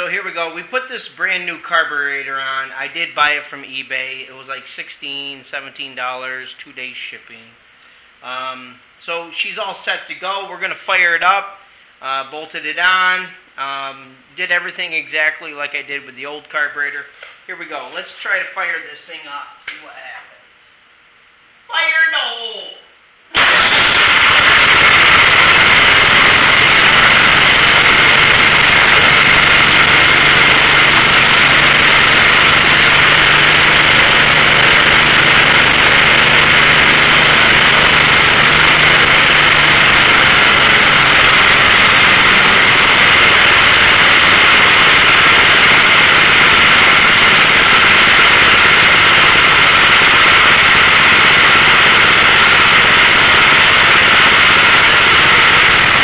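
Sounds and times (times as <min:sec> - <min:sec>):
riding mower engine running: 0:23.4 - 0:56.0.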